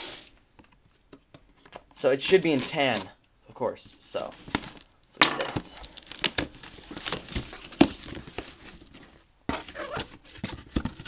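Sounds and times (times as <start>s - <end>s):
cardboard rustling: 4.0s - 11.0s
cardboard box flaps rubbing: 6.7s - 11.0s.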